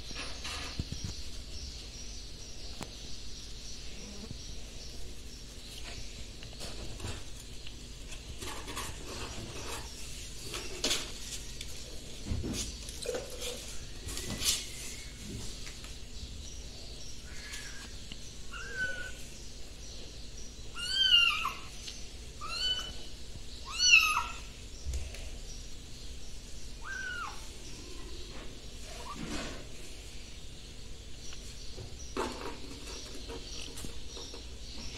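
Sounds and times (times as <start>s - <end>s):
soft rustles and knocks: 5.7s - 16.0s
kittens mewing: 20.8s - 21.8s, 22.4s - 24.5s, 26.8s - 27.5s.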